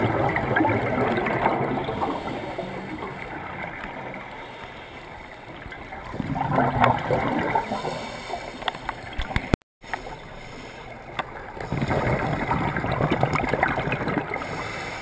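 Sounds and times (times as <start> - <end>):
underwater exhalation bubbles: 0.0 - 4.3, 6.0 - 8.1.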